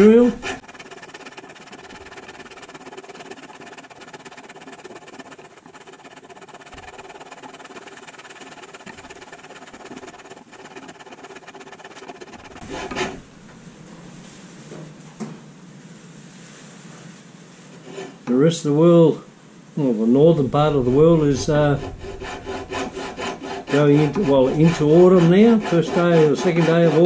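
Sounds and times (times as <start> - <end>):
fretsaw cutting through wood: 0.0 - 13.4, 20.2 - 27.0.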